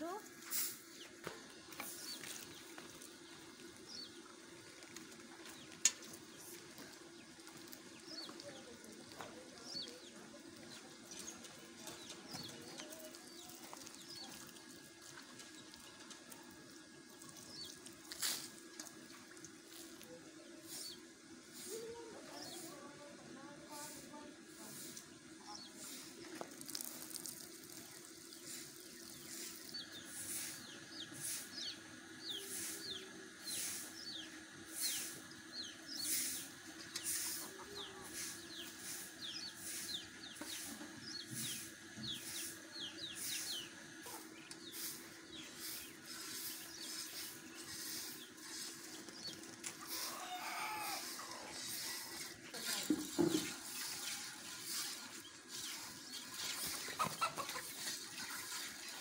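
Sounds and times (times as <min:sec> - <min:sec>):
milk squirting into a pail: 0:26.1 - 0:29.6.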